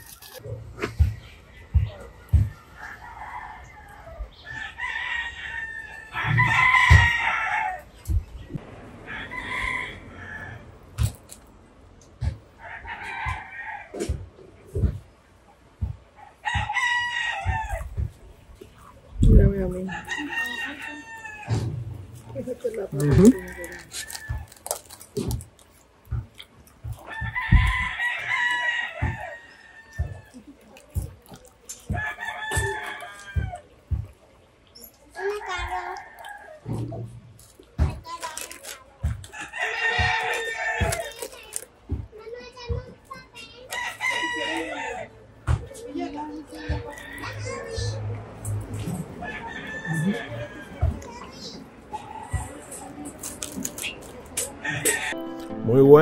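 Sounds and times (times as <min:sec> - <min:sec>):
roosters crowing: 0:01.0 - 0:11.3, 0:12.5 - 0:14.2, 0:16.2 - 0:18.9, 0:19.6 - 0:25.0, 0:26.8 - 0:30.6, 0:31.8 - 0:34.0, 0:39.3 - 0:41.6, 0:43.7 - 0:53.8, 0:54.5 - 0:55.4
rooster crowing: 0:01.7 - 0:07.9, 0:09.0 - 0:10.8, 0:19.9 - 0:21.7, 0:43.7 - 0:45.1, 0:49.2 - 0:50.8.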